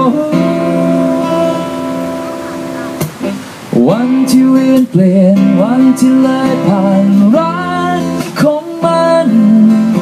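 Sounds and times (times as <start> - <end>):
man singing slow ballad: 0.0 - 2.7, 3.7 - 10.0
acoustic guitar strumming: 0.0 - 10.0.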